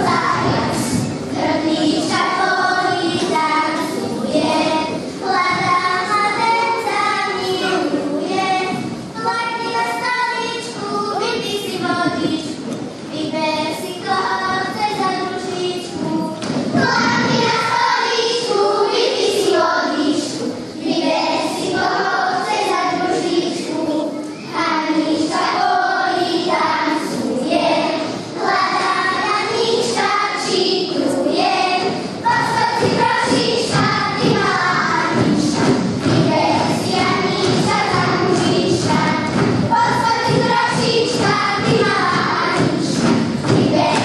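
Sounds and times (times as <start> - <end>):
children singing in unison: 0.0 - 44.0
feet thudding on wooden stage: 32.3 - 44.0.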